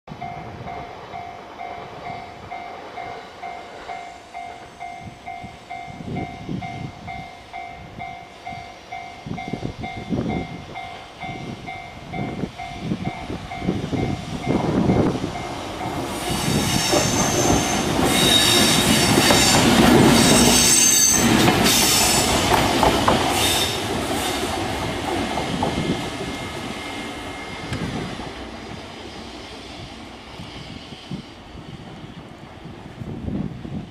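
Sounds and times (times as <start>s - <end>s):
electric locomotive passing: 0.1s - 33.9s
wheel squeal: 16.1s - 22.3s.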